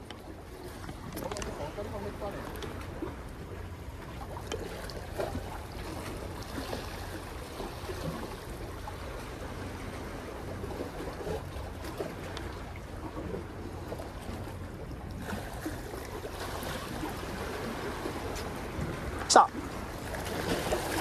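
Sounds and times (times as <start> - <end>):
sea water washing against breakwater: 0.0 - 21.0
faint clicks and knocks: 0.8 - 1.6.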